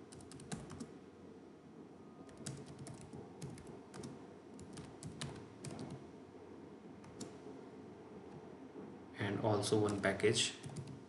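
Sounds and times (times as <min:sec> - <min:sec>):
keyboard key clicks: 0:09.9 - 0:11.0.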